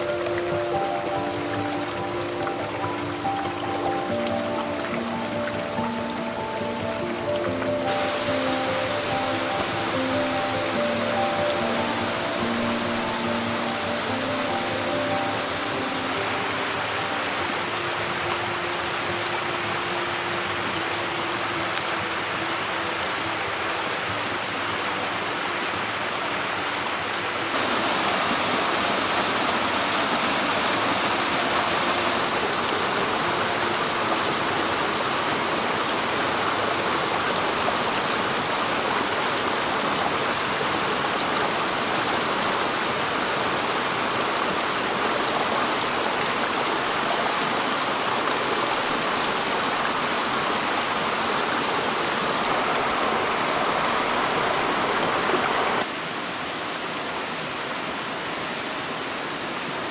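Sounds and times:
mountain stream rushing: 0.0s - 59.9s.

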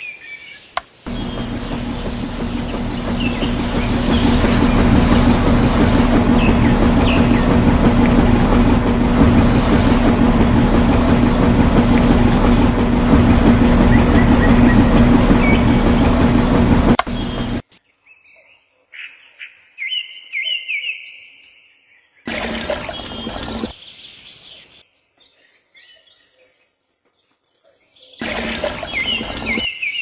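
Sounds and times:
birds chirping: 0.7s - 17.6s, 22.4s - 24.6s, 28.1s - 30.0s
small motor humming: 1.1s - 17.6s, 22.3s - 23.7s, 28.2s - 29.7s.

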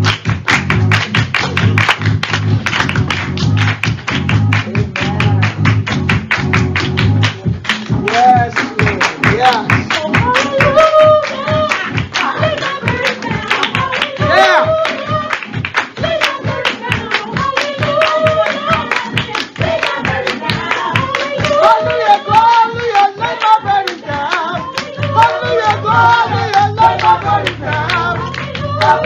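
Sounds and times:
low bass: 0.0s - 9.4s, 24.9s - 29.0s
hand clapping on the beat: 0.0s - 29.0s
church praise singing: 7.9s - 29.0s.

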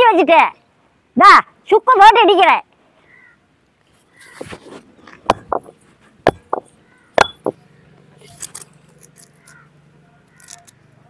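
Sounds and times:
stone pestle pounding on stone: 6.3s - 7.6s.

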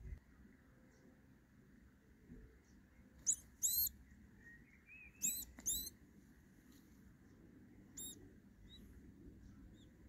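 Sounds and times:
vole squeaking: 3.2s - 4.0s, 5.1s - 6.0s, 7.9s - 8.9s.

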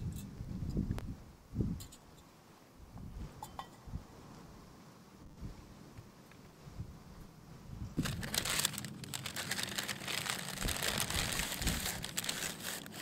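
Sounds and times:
paper bag rustling: 8.0s - 13.0s.

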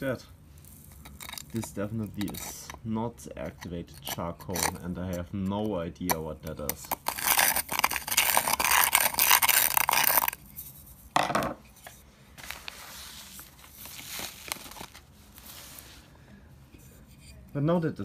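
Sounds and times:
screwdriver scraping charcoal granules: 0.6s - 5.7s, 6.6s - 10.4s
faint rustling: 11.8s - 17.5s.

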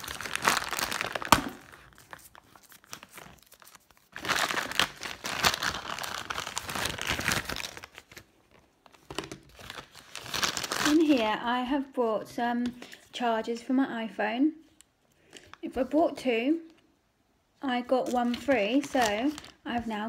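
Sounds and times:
plastic bag crinkling: 0.0s - 11.4s, 17.9s - 20.0s.

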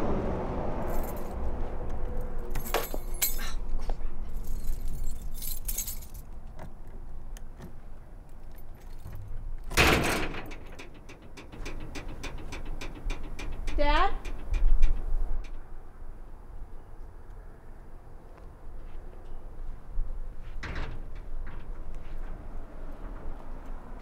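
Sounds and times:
metallic jangling and clicking: 2.5s - 3.6s, 4.3s - 6.4s, 8.3s - 15.6s.

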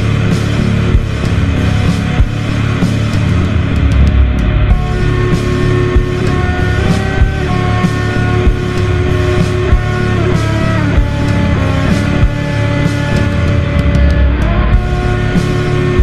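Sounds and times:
slow heavy drum beat: 0.0s - 16.0s
echoing electric guitar notes: 4.4s - 16.0s.

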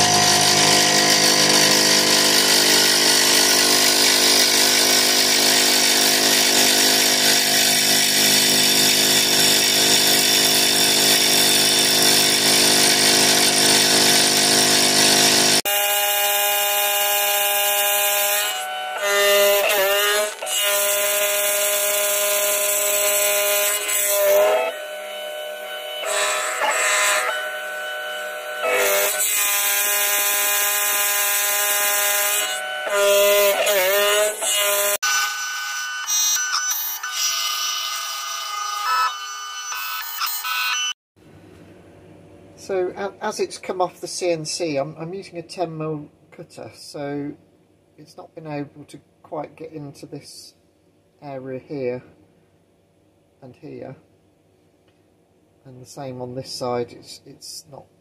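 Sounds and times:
milling machine cutting metal: 0.0s - 40.9s.

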